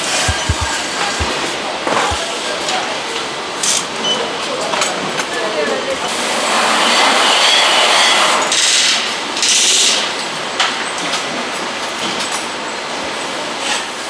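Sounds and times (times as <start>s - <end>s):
sharp click: 0.3s - 1.4s.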